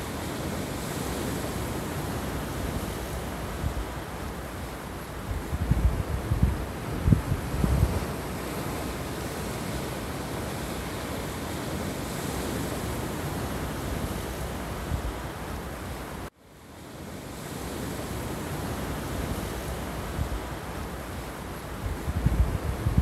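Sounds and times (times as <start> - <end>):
surf washing over pebbles: 0.0 - 23.0.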